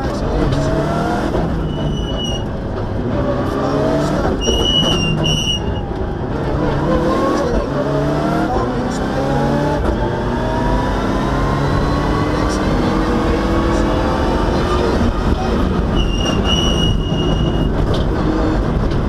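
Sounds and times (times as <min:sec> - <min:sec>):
rally car engine revving through gears: 0:00.0 - 0:19.0
brief high-pitched squeals: 0:01.6 - 0:02.5, 0:04.4 - 0:05.9, 0:16.0 - 0:17.8.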